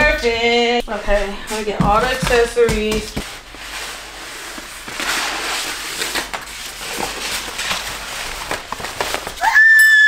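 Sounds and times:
paper wrap peeling and crinkling: 3.4 - 9.6.

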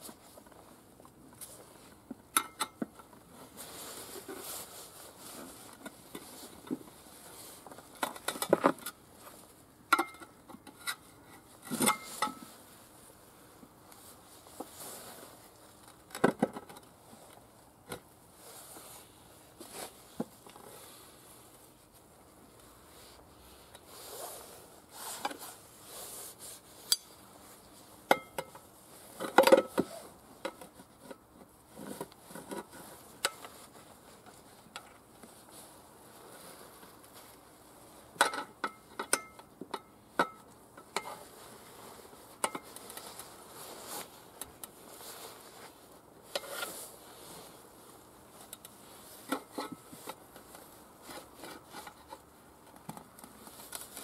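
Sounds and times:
tyre levers clinking on steel rim: 2.3 - 2.8.

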